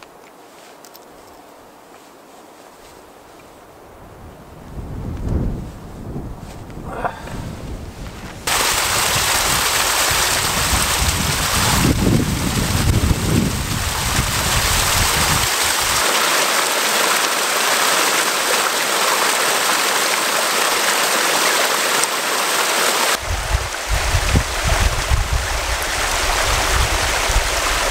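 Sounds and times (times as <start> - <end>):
wind buffeting microphone: 3.9 - 16.0, 23.2 - 27.9
water rushing in cascade: 8.4 - 27.9.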